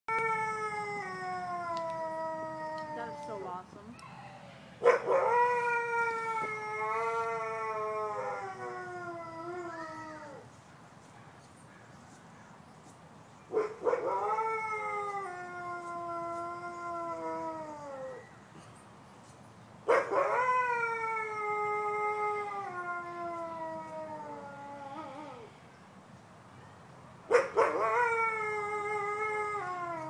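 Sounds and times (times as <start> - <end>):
wolf howling: 0.1 - 3.5, 5.1 - 10.4, 14.0 - 18.3, 20.1 - 25.5, 27.6 - 30.0.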